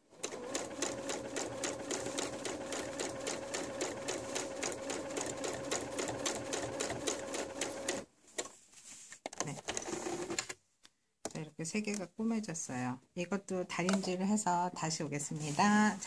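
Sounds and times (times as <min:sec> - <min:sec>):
sewing machine stitching: 0:00.1 - 0:08.1, 0:09.4 - 0:10.6.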